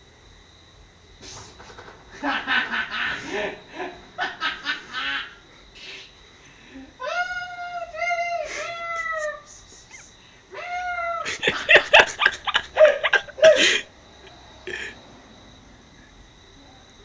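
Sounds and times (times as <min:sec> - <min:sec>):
cats yowling and screeching: 0:07.0 - 0:13.9.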